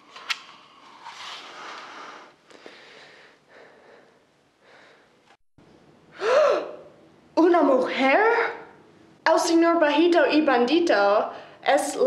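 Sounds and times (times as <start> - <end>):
person breathing softly: 1.4 - 5.2.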